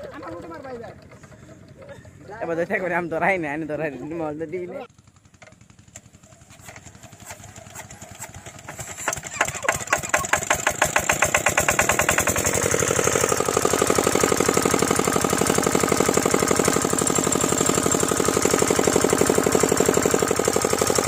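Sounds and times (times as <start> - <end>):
diesel engine running: 2.7 - 21.0.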